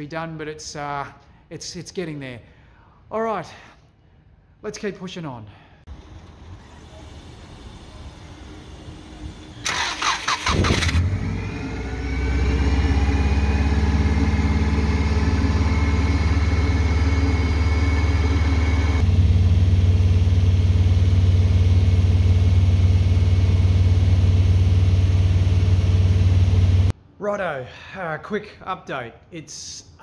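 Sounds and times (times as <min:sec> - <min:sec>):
engine starter cranking: 0:05.9 - 0:11.3
car engine idling: 0:05.9 - 0:26.9.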